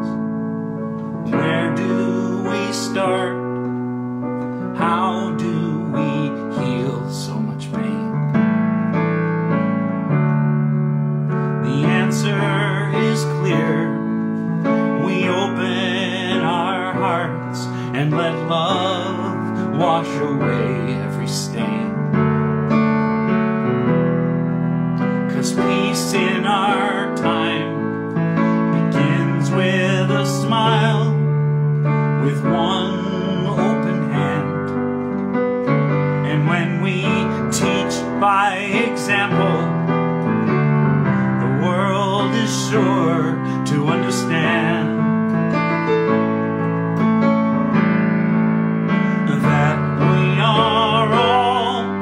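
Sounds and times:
piano music: 0:00.0 - 0:52.0
person singing: 0:00.9 - 0:03.8, 0:04.4 - 0:08.3, 0:11.3 - 0:22.3, 0:25.0 - 0:46.2, 0:49.0 - 0:52.0.

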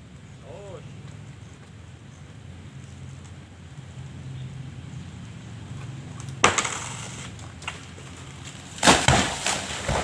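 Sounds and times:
palm crown snapping with crack: 0:06.2 - 0:10.0
heavy thuds on ground: 0:08.8 - 0:10.0.

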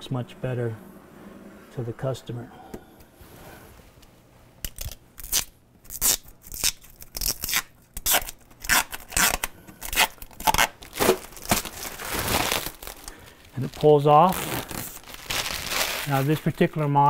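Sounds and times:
plastic film tearing: 0:04.6 - 0:16.6.

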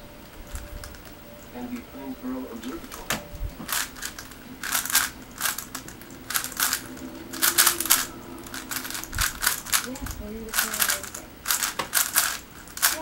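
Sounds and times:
plastic cube clicking and rattling: 0:02.9 - 0:07.6, 0:08.8 - 0:13.0.

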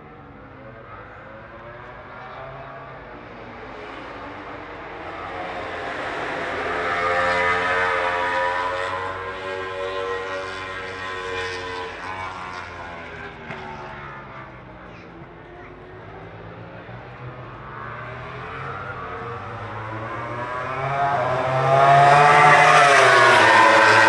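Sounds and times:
passing engine drone: 0:16.9 - 0:24.0.

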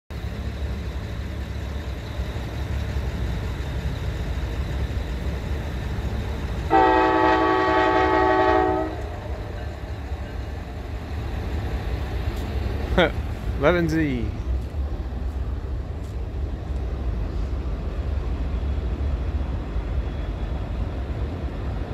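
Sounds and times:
diesel locomotives rumbling: 0:00.1 - 0:21.9
train air horn blast: 0:06.7 - 0:09.3.

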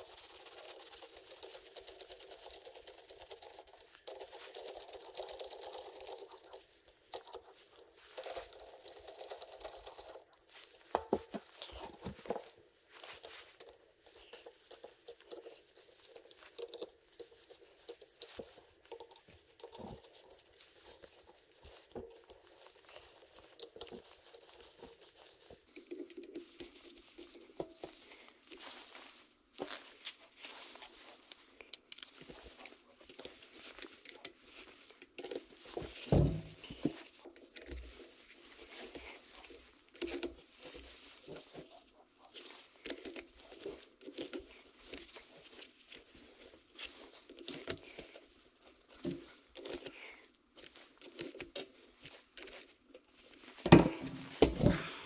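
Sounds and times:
small clicks and scrapes of metal parts: 0:00.0 - 0:54.9.

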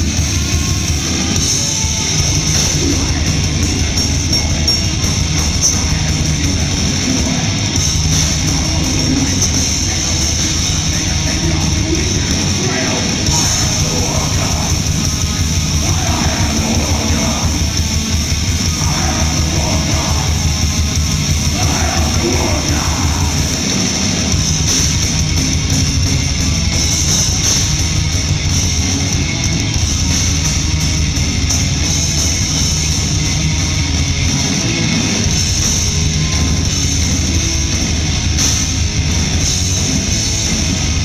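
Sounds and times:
distorted electric guitars: 0:00.0 - 0:41.0
drums: 0:00.0 - 0:41.0
shouted vocals: 0:11.1 - 0:15.0, 0:15.6 - 0:17.8, 0:18.6 - 0:20.8, 0:21.4 - 0:23.8.

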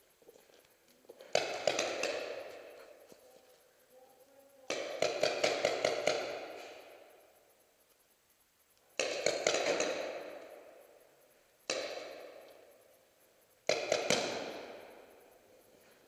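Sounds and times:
paintball marker shots echoing: 0:01.3 - 0:02.9, 0:04.7 - 0:07.1, 0:09.0 - 0:10.7, 0:11.6 - 0:12.8, 0:13.6 - 0:15.1.

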